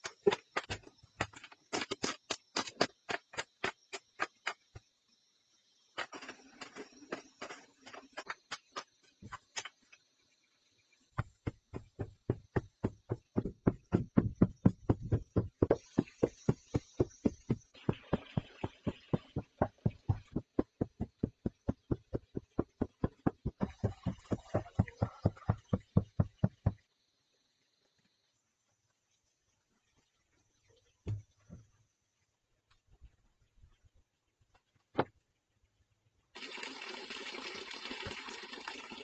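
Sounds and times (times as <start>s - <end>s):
hoe scraping soil: 6.0s - 8.9s
feet stamping on earth: 11.2s - 26.5s.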